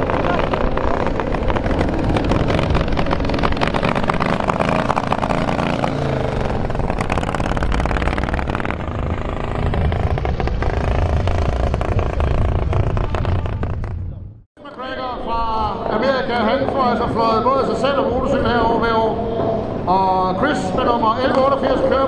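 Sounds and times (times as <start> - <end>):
motorcycle engines pulling away: 0.0 - 14.4.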